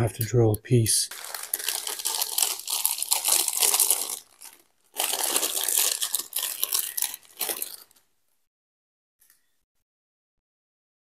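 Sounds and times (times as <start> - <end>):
plastic bag crinkling: 1.1 - 8.1.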